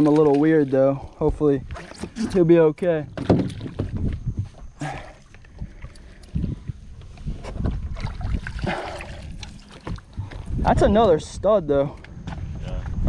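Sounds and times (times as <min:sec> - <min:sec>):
wind buffeting microphone: 0:03.0 - 0:13.0.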